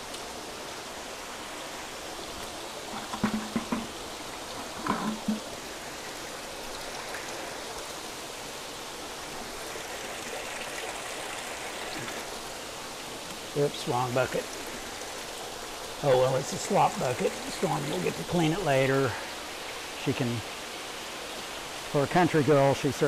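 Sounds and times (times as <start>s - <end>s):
water rushing through vats: 0.0s - 23.0s.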